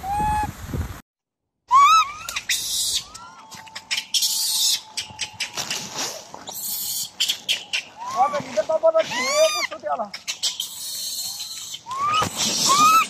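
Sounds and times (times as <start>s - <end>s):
baby monkey crying: 1.7s - 5.8s, 6.5s - 13.0s
rustling: 5.2s - 10.7s.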